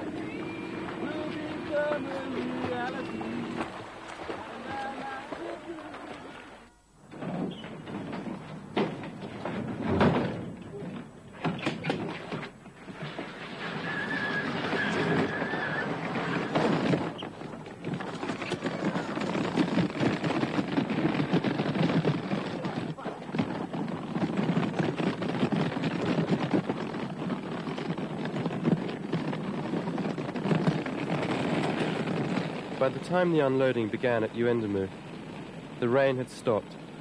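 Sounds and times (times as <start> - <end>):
castors rattling on dirt: 0.0 - 37.0
brief high squeal: 13.8 - 16.4.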